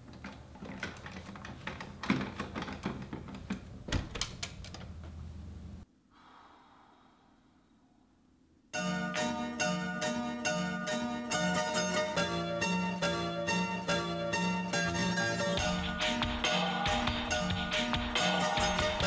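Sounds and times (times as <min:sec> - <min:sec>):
handling clicks and rustles: 0:00.0 - 0:05.4.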